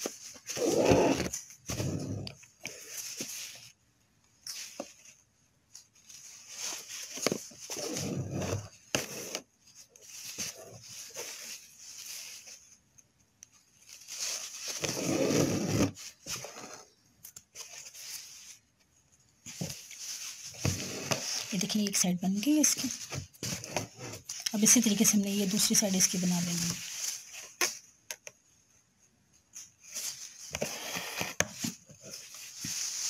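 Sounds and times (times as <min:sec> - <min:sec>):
fingers rubbing fabric: 0:00.6 - 0:02.3, 0:14.8 - 0:16.8.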